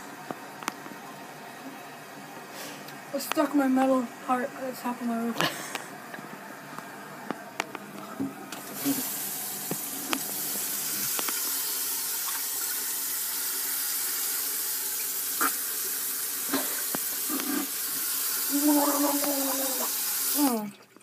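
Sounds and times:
water running into sink: 4.8 - 21.0.

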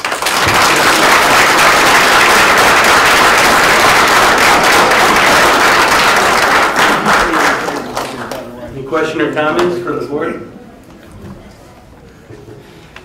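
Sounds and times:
audience clapping: 0.0 - 8.6.

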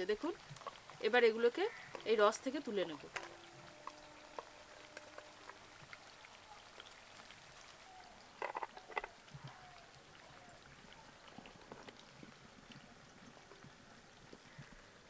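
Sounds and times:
food sizzling in frying oil: 0.0 - 9.5.

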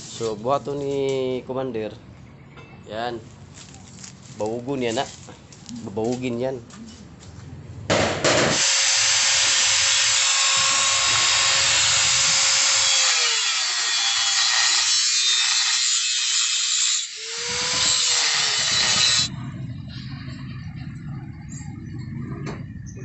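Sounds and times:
angle grinder cutting metal pipe: 8.6 - 19.3.

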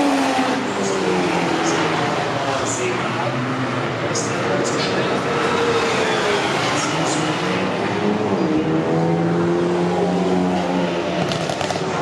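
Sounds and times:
race car engines passing: 0.0 - 12.0.

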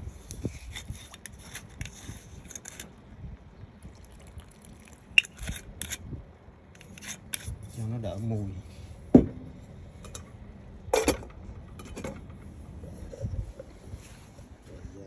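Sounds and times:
water boiling in a pot: 3.4 - 5.8
liquid pouring from a bottle: 3.8 - 5.4.

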